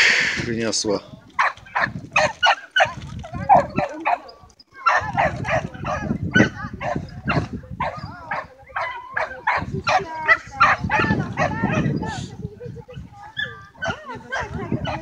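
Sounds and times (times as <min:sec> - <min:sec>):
small dog barking: 0:01.4 - 0:04.2, 0:04.8 - 0:11.9, 0:13.4 - 0:15.0.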